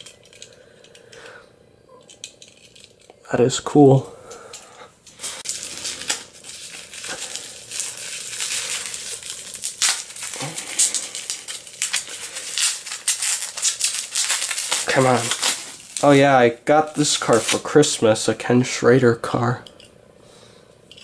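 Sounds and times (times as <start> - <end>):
packing material crinkling: 5.0 - 18.0.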